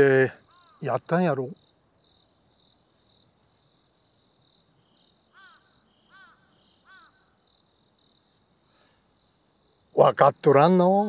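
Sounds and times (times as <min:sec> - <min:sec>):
bird calling: 0:00.0 - 0:01.2, 0:04.6 - 0:09.1
crickets chirping: 0:00.0 - 0:11.0.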